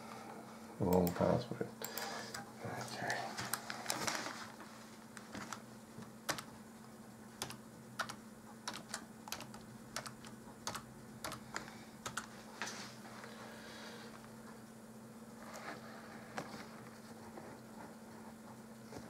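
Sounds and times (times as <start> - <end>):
faint steady hum: 0.0 - 19.0
computer keyboard keys clicking: 6.3 - 6.5, 7.4 - 12.3.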